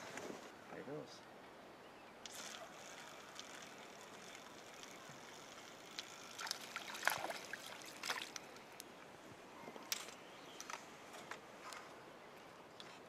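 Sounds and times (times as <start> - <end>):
fish splashing at water surface: 6.4 - 8.4.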